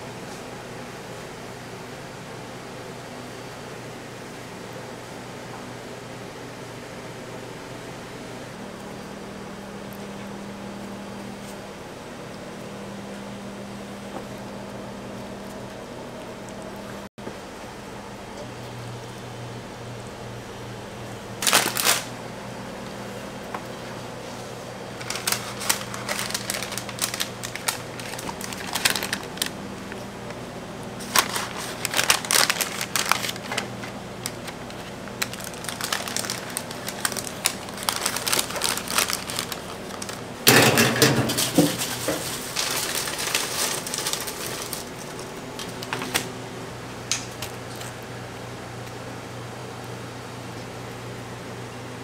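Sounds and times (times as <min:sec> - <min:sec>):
low ventilation hum: 0:00.0 - 0:52.0
paper crinkling and rustling: 0:21.4 - 0:22.1, 0:24.2 - 0:30.4, 0:31.0 - 0:46.3.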